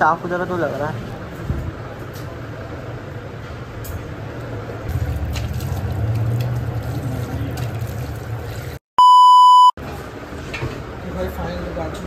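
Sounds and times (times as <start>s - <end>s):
high electronic beep: 9.0s - 9.8s.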